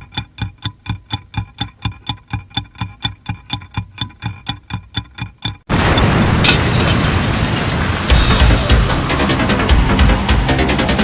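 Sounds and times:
clock-like ticking: 0:00.0 - 0:06.4.

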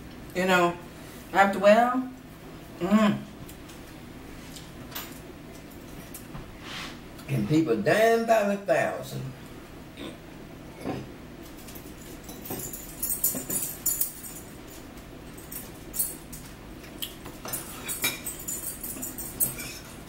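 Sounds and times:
utensils clinking on dishes: 0:10.8 - 0:16.6, 0:17.3 - 0:20.0.

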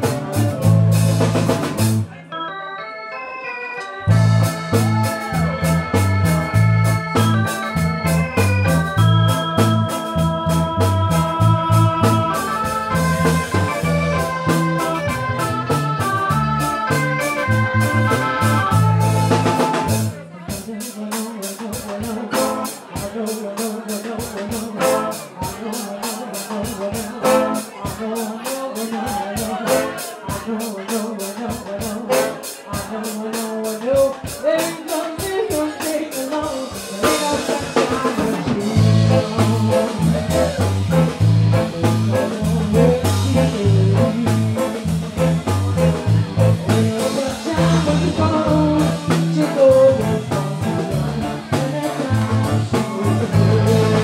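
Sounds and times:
bass line: 0:00.0 - 0:02.3, 0:04.0 - 0:20.3, 0:36.8 - 0:54.0
electric guitar: 0:00.0 - 0:54.0
live blues band playing: 0:00.0 - 0:54.0.

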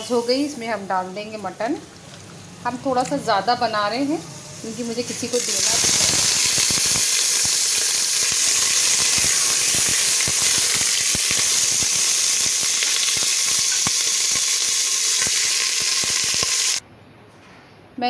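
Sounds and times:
meat sizzling in oil: 0:04.6 - 0:16.8.

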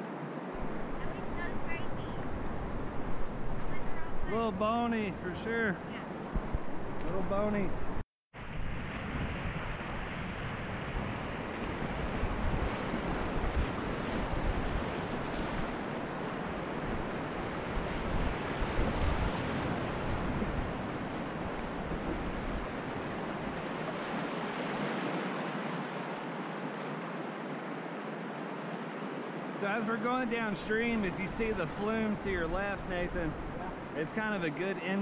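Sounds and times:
wind rumbling on microphone: 0:00.0 - 0:29.6, 0:30.2 - 0:34.4
whitewater rushing: 0:11.2 - 0:35.0.

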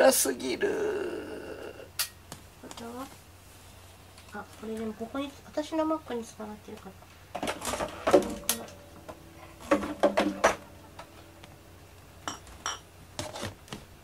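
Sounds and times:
hard objects knocking and clinking: 0:12.2 - 0:12.9.

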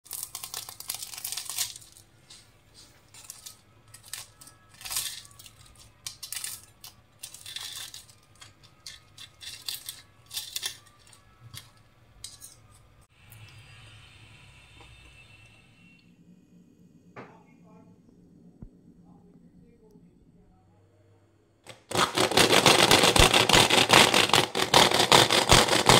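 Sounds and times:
pastry crackling and crunching: 0:00.0 - 0:13.0, 0:21.7 - 0:25.9
cutlery scraping on plate: 0:12.2 - 0:12.9.

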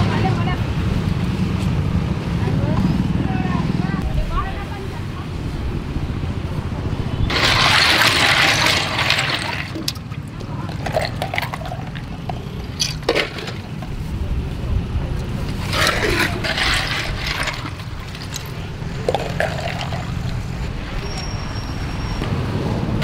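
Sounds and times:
drink pouring into plastic cup: 0:07.3 - 0:13.9, 0:15.6 - 0:20.6
ice cubes clattering and cracking: 0:07.3 - 0:13.9, 0:15.6 - 0:20.5.

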